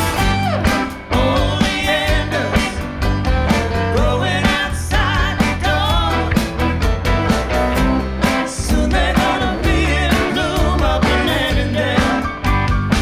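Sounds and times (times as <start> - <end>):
live rock band playing: 0.0 - 13.0
person singing: 1.0 - 2.9, 3.7 - 6.5, 8.2 - 12.4.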